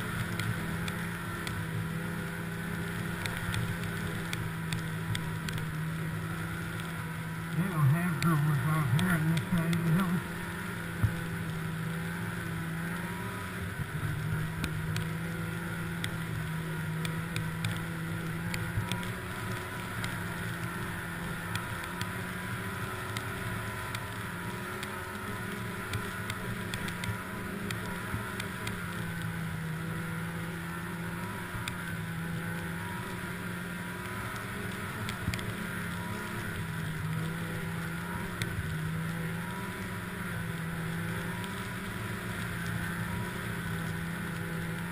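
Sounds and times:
snowmobile engine droning: 0:00.0 - 0:44.9.

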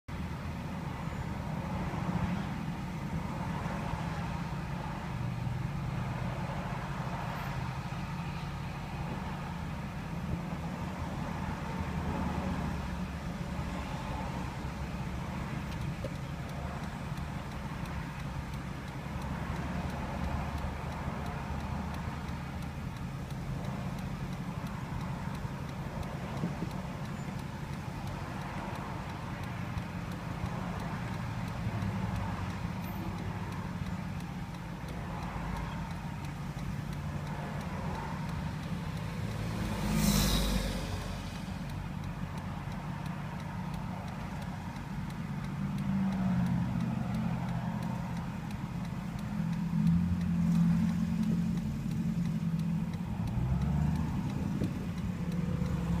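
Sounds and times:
cars idling in traffic: 0:00.0 - 0:56.0.

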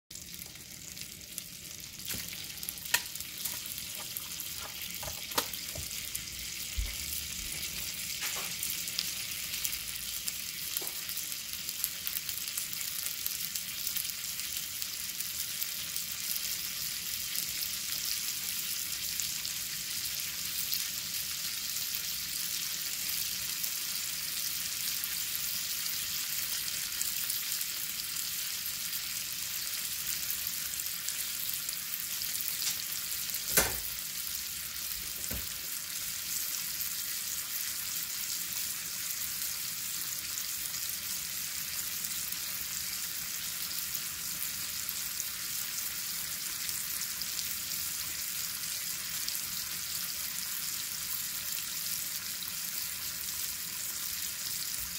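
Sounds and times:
onions sizzling in butter: 0:00.1 - 0:54.9
sharp pops and crackles: 0:02.1 - 0:06.0, 0:32.6 - 0:33.9.

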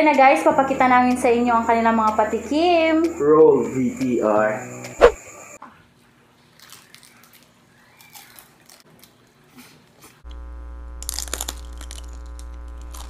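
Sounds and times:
crunching crispy fried food: 0:06.4 - 0:09.2, 0:10.3 - 0:13.0
low electrical buzz: 0:10.3 - 0:13.0.

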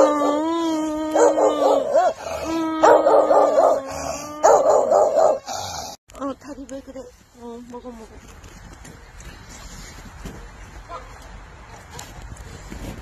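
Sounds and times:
dogs howling: 0:00.0 - 0:05.5
dogs barking and yelping: 0:00.0 - 0:06.0.

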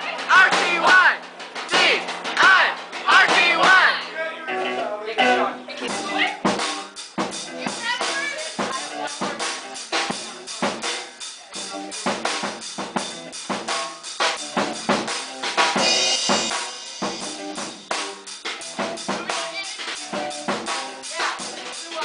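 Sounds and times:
drum kit beating: 0:00.0 - 0:22.0
electric guitars: 0:04.5 - 0:22.0.

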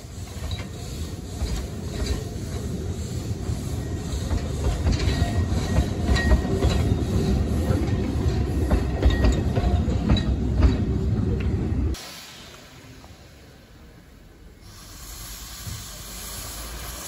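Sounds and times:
train wheels clattering over rail joints: 0:00.0 - 0:11.1
train rumble: 0:00.0 - 0:17.0.

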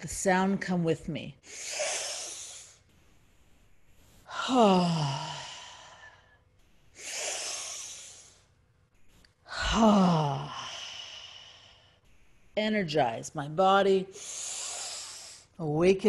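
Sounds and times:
woman breathing out: 0:01.4 - 0:02.8, 0:04.3 - 0:08.5, 0:09.5 - 0:12.0, 0:14.1 - 0:15.5
woman sighing: 0:04.3 - 0:06.2, 0:09.5 - 0:11.6.

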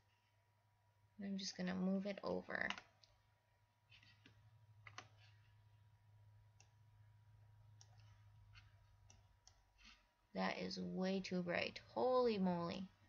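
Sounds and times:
low steady hum: 0:00.0 - 0:13.0
computer mouse clicks: 0:02.6 - 0:03.2, 0:03.9 - 0:05.4, 0:06.5 - 0:06.8, 0:07.7 - 0:10.0.

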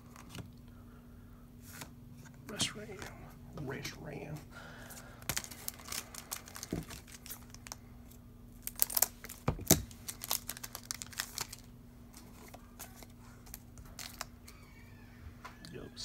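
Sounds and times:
foil wrapper crinkling: 0:04.8 - 0:14.6.

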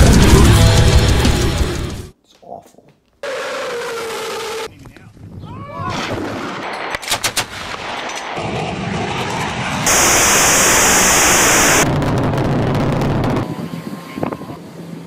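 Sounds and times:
rumbling noise: 0:00.0 - 0:02.1, 0:08.4 - 0:13.5
rocket launch rumble: 0:08.4 - 0:13.4.

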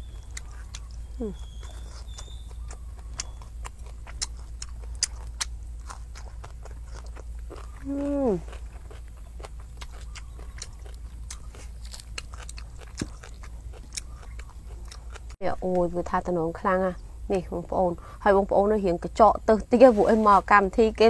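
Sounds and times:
chewing crunches: 0:00.0 - 0:15.4
person humming: 0:01.2 - 0:01.4, 0:07.8 - 0:08.5.

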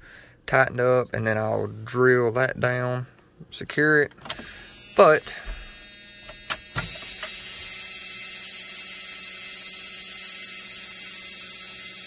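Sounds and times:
high-pitched electrical whine: 0:04.3 - 0:12.0.

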